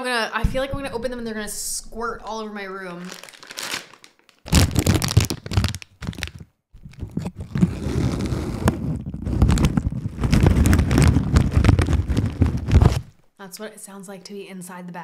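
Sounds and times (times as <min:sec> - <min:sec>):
microphone handling rumble: 0:00.4 - 0:02.8, 0:04.5 - 0:13.1
plastic bag crinkling: 0:01.0 - 0:13.2
seeds rattling in bag: 0:03.0 - 0:13.1.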